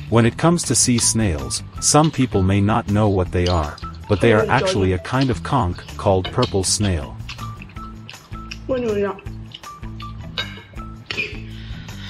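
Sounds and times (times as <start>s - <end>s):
music with repeating bass: 3.8s - 12.0s.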